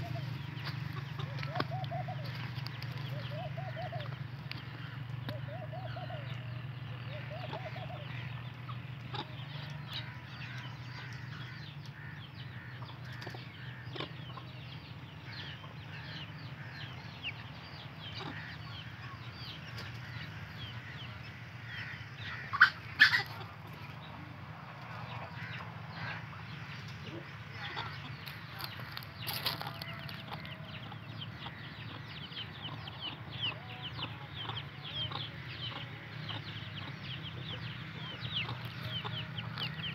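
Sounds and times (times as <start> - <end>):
hen clucking: 0.0 - 6.4, 7.1 - 14.6, 18.0 - 21.2, 21.8 - 39.9
chicks peeping: 0.0 - 21.3, 21.9 - 39.9
loud hen calls: 20.0 - 23.8.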